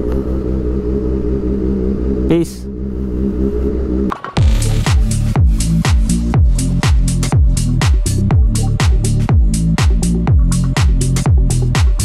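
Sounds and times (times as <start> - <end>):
bass line: 0.0 - 12.0
electronic dance music: 4.1 - 12.0
steady kick drum: 4.4 - 12.0.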